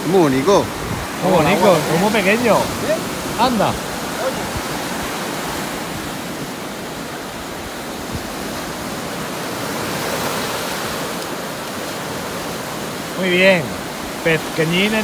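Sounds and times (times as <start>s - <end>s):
waves breaking on beach: 0.0s - 15.0s.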